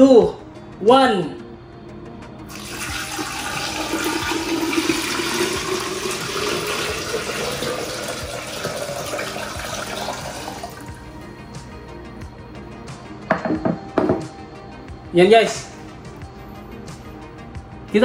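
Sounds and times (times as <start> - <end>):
water splashing and gurgling: 2.5 - 10.9
water pouring into glass vase: 2.5 - 11.0.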